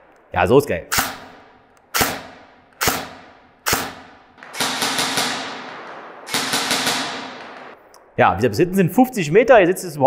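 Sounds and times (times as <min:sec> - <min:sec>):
airsoft rifle firing with echo: 0:00.9 - 0:07.8.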